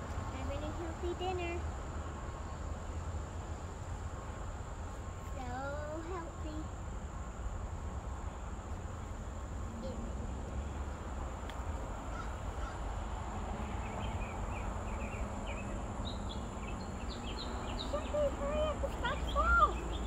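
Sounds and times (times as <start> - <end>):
birds chirping: 11.9 - 20.0.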